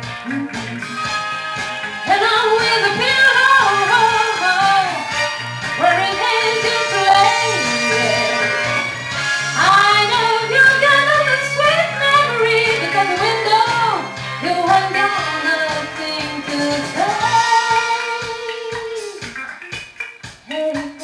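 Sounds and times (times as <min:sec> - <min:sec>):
backing track with bass line: 0:00.0 - 0:21.0
woman singing soul song: 0:02.1 - 0:05.1, 0:05.8 - 0:08.7, 0:09.6 - 0:19.2, 0:20.5 - 0:21.0.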